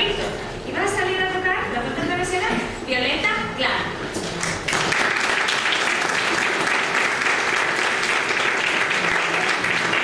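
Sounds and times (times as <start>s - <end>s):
audience applauding: 4.4s - 10.0s.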